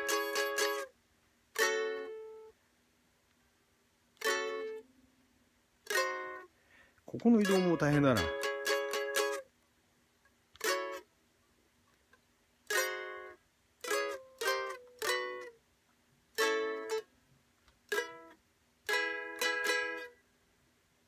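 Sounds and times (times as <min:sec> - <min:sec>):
ukulele chords strummed: 0:00.0 - 0:01.0, 0:01.6 - 0:02.6, 0:04.2 - 0:04.9, 0:05.8 - 0:06.5, 0:07.1 - 0:09.5, 0:10.6 - 0:11.1, 0:12.6 - 0:15.6, 0:16.3 - 0:17.1, 0:17.9 - 0:20.2.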